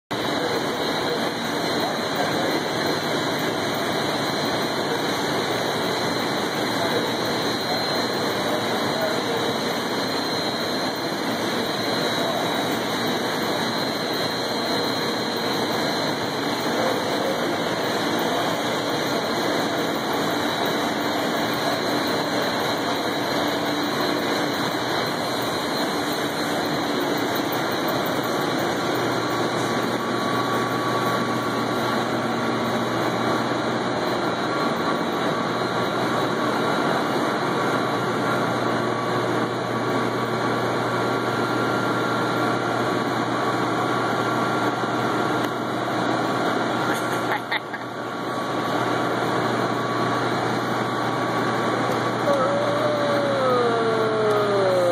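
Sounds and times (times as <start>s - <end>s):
boiler room machinery drone: 0.1s - 54.9s
faint high whine: 0.2s - 36.5s, 48.2s - 54.9s.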